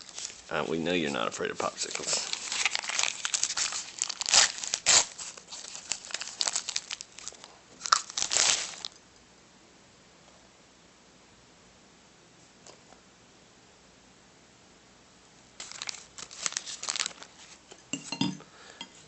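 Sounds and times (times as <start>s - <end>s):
plastic wrapper crinkling and tearing: 0.0s - 9.0s, 15.6s - 17.6s.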